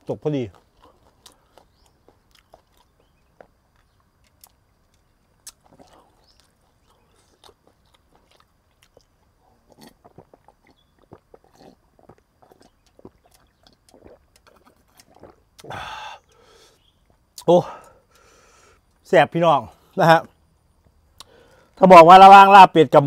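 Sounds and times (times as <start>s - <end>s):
wet mouth clicks: 0.6s - 9.1s, 9.7s - 16.5s, 21.2s - 21.4s
person gulping and swallowing: 5.4s - 16.0s.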